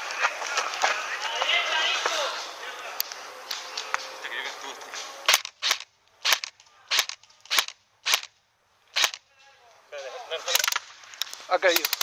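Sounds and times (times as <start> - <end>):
airsoft gun pops: 5.3 - 8.3, 9.0 - 9.2.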